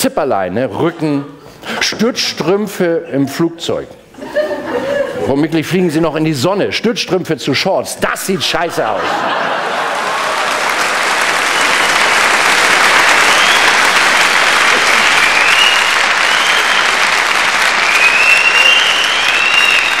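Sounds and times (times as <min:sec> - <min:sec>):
audience applauding: 0:09.2 - 0:20.0.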